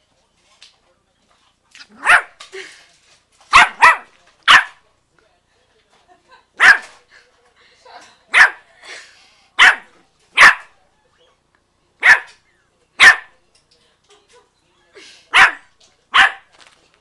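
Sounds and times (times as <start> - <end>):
puppy barking: 1.9 - 2.4, 3.5 - 4.8, 6.6 - 7.0, 8.3 - 8.7, 9.6 - 10.8, 12.0 - 12.4, 13.0 - 13.3, 15.3 - 16.5.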